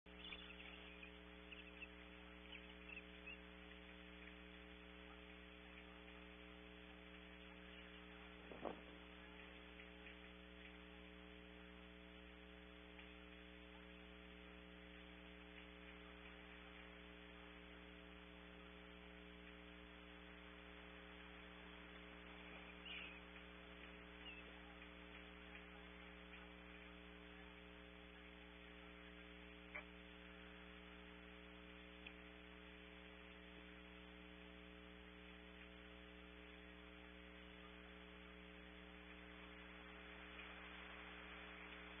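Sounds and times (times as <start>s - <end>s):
electrical mains hum: 0.1s - 42.0s
faint hiss: 0.2s - 42.0s.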